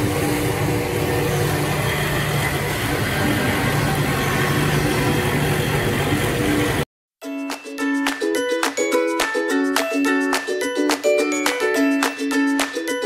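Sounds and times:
wood lathe machine drone: 0.0s - 6.8s.

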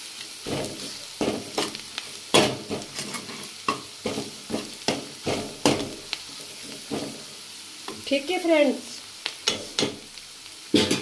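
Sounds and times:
onions sizzling in oil: 0.0s - 11.0s
steel ladle scraping a pan: 0.5s - 5.9s.

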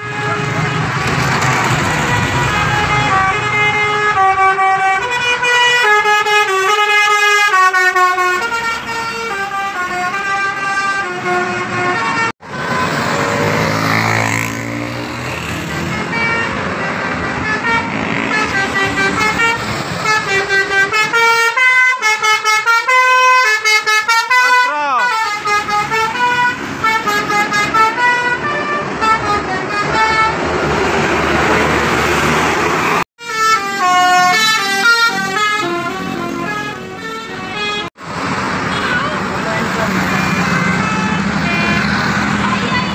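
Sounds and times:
passing traffic engines: 0.0s - 42.9s
multi-tone air horn tune: 15.8s - 30.4s, 33.2s - 37.9s.

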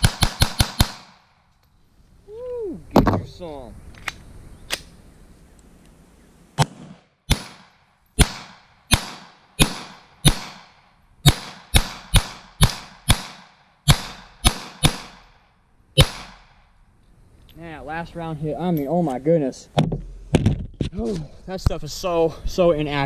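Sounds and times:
pistol shots with echo: 0.0s - 1.2s, 6.6s - 15.3s, 16.0s - 16.5s.

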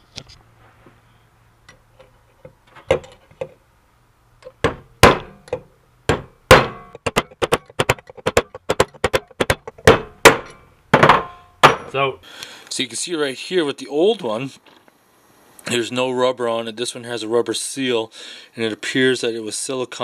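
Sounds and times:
hammer striking metal punch: 4.4s - 12.0s.

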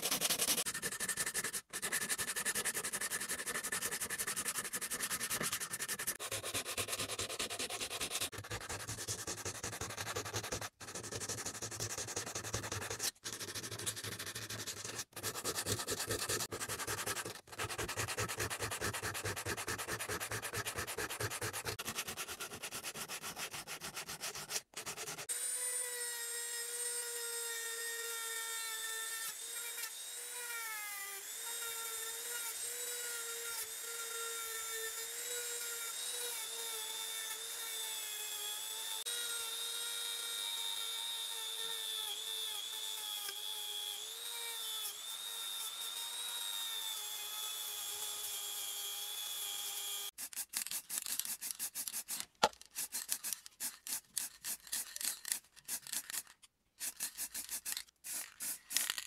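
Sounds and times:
sandpaper rubbing on metal: 0.0s - 25.3s, 50.1s - 59.0s.

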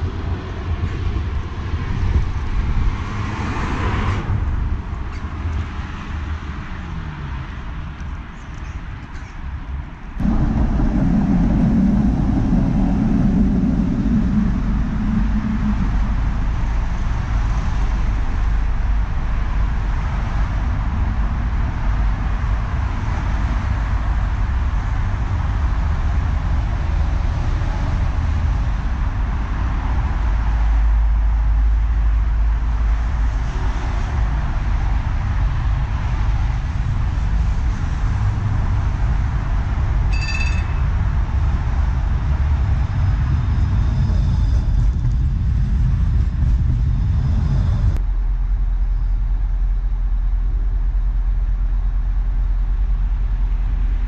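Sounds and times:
road traffic rumble: 0.0s - 54.0s
high-pitched ring: 40.1s - 41.0s.

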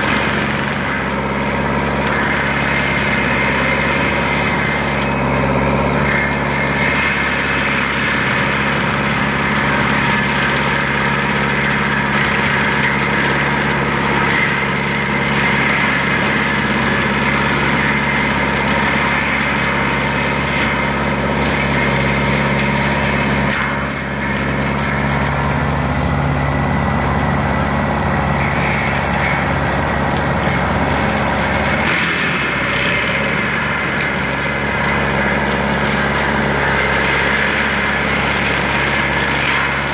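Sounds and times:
forestry mulcher grinding brush: 0.0s - 39.9s
tracked vehicle engine running: 0.0s - 39.9s.

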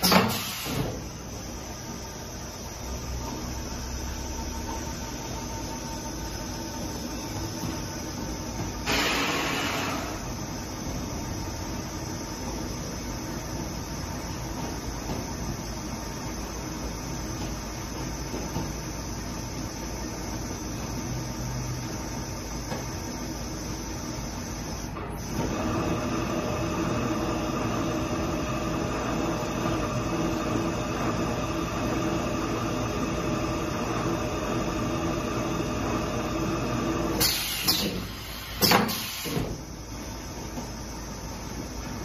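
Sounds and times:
air hiss bursts: 0.0s - 1.1s, 8.8s - 10.4s, 37.2s - 39.6s
machine spindle drives humming: 0.0s - 42.0s.

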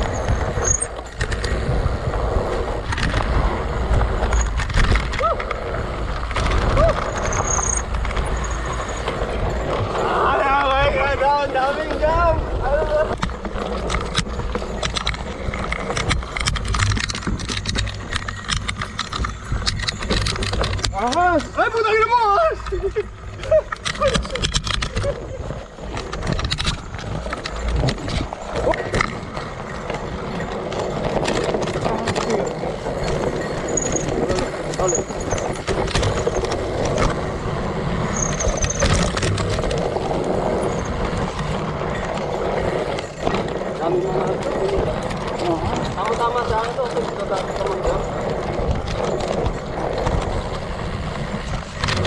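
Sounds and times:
bike rattling over bumps: 0.0s - 52.0s
tyre rumbling on dirt: 0.0s - 52.0s
high squeak: 38.0s - 39.1s.

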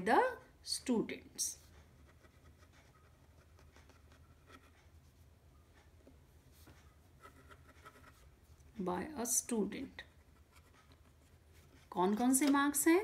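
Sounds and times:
low room hum: 0.0s - 13.0s
pen scratching on paper: 7.2s - 8.3s.

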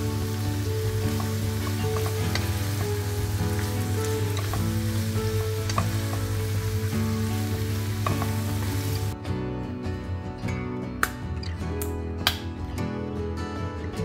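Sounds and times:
vegetables sizzling in a frying pan: 0.0s - 9.2s.

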